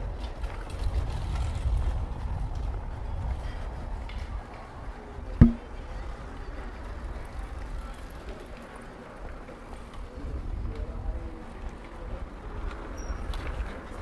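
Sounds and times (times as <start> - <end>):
low city street rumble: 0.0 - 14.0
sharp knock: 5.4 - 5.6.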